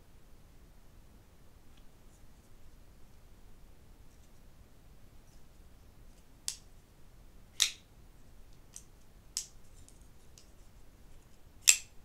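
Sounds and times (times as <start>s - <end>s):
folding knife metallic clicks: 7.6s - 7.8s, 11.6s - 11.9s.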